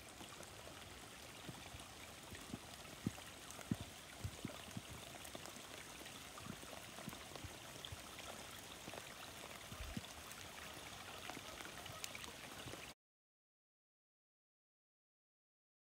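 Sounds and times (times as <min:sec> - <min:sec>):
water drops ticking: 0:01.4 - 0:09.0.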